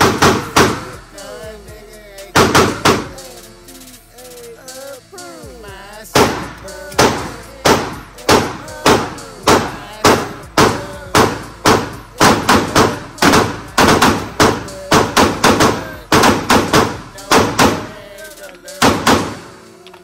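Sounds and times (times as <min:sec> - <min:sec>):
pistol shots echoing indoors: 0:07.6 - 0:17.8, 0:18.8 - 0:19.5.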